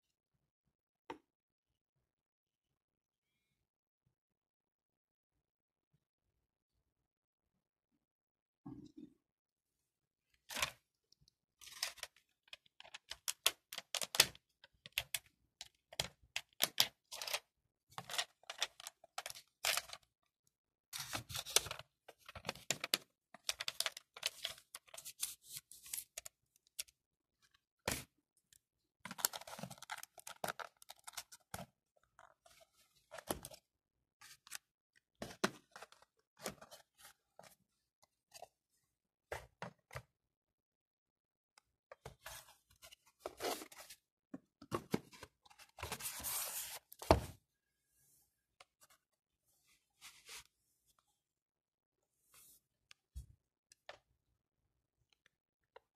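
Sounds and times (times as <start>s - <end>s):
cardboard packaging rustling: 29.1s - 31.5s.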